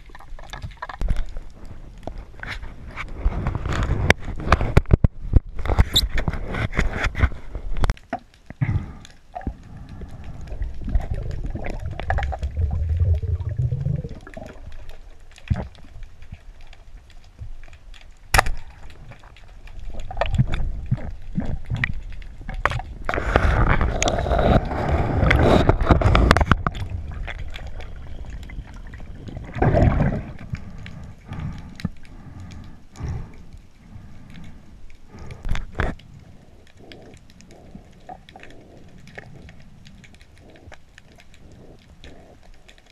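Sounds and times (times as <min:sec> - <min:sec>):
underwater gurgling and bubbling: 0:08.6 - 0:17.0, 0:18.7 - 0:42.9
rushing bubbles: 0:09.3 - 0:15.8, 0:19.9 - 0:31.1.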